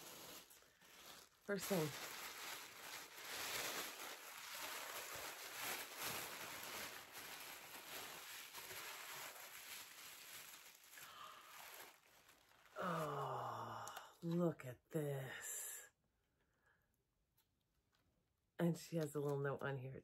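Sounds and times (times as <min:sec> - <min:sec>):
tissue paper rustling: 0:00.0 - 0:13.3.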